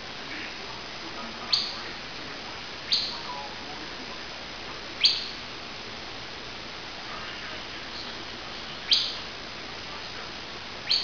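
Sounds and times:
steady hiss: 0.0 - 11.0
faint bird chirps: 1.5 - 1.8, 2.9 - 3.6, 5.0 - 5.5, 8.8 - 9.3.

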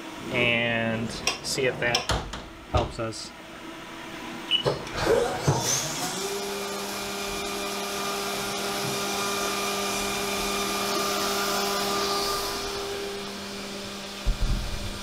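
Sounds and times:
milling machine spindle hum: 3.3 - 15.0.

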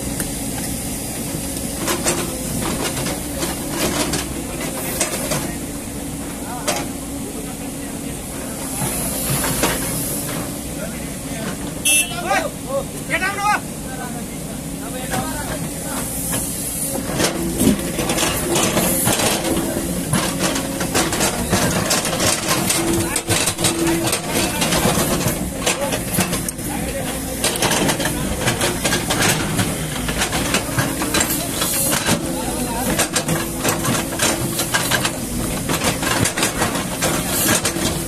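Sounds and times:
diesel engine running: 0.0 - 38.0
excavator bucket clanking: 0.2 - 7.2, 8.6 - 12.3, 15.0 - 38.0.

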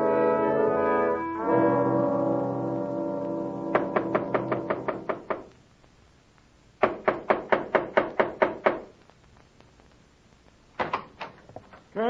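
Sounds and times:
brass music: 0.0 - 5.1
knocking on a wooden door: 3.7 - 5.5, 6.8 - 8.8.

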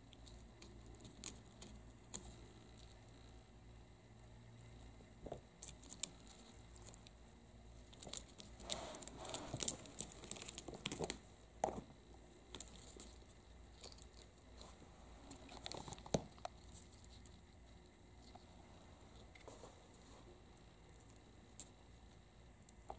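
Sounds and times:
claws scratching a reed screen: 7.8 - 11.2.

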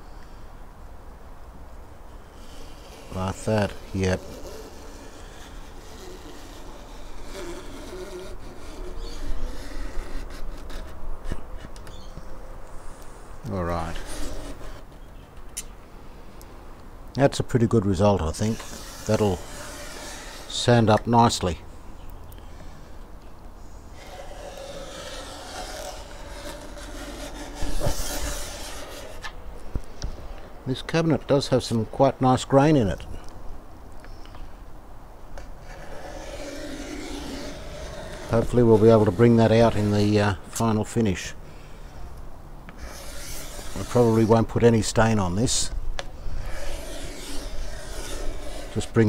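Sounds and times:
scraper scraping wood: 2.1 - 12.1, 12.9 - 15.1, 18.2 - 21.1, 23.9 - 29.4, 35.4 - 40.8, 42.7 - 49.0.

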